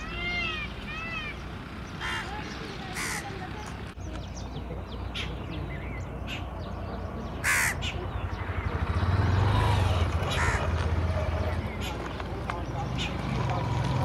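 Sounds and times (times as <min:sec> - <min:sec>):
crows cawing: 0:02.0 - 0:03.4, 0:07.4 - 0:08.0, 0:10.2 - 0:11.0.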